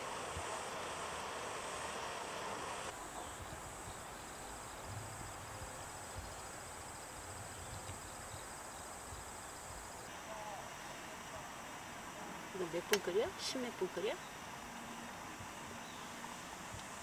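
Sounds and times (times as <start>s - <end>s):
camp stove burner hissing: 0.0s - 17.0s
crickets chirring: 0.0s - 17.0s.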